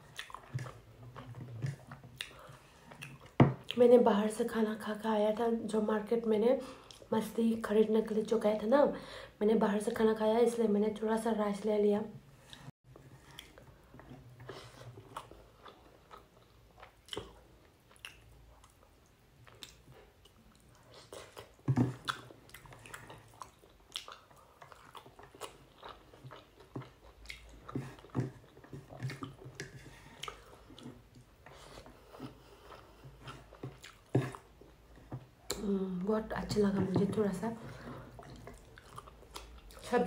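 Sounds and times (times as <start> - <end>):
person chewing food: 0.0 - 3.8, 12.5 - 35.7, 37.7 - 39.9.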